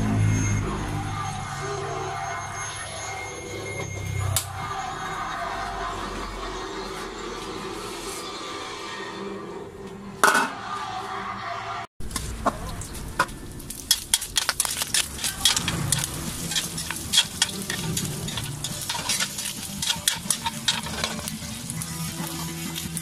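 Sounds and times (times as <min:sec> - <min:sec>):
meat sizzling in hot fat: 0:13.6 - 0:23.0
metal spatula scraping a pan: 0:13.8 - 0:23.0.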